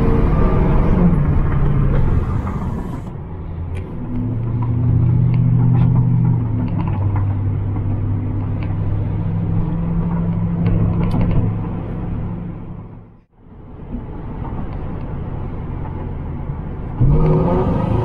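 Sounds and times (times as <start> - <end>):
car engine droning in cabin: 0.0 - 13.6.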